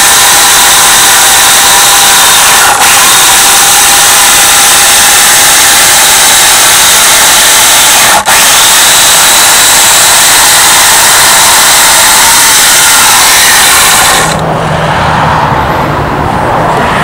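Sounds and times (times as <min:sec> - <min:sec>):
electric chainsaw cutting log: 0:13.0 - 0:14.4.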